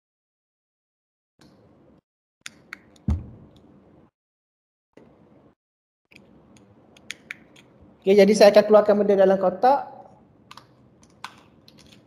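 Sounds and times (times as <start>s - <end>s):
dull thump: 3.1s - 3.5s.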